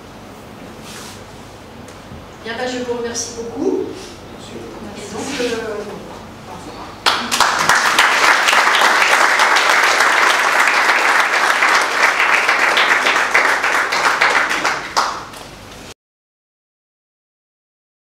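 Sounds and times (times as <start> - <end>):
audience applauding: 7.0 - 15.4.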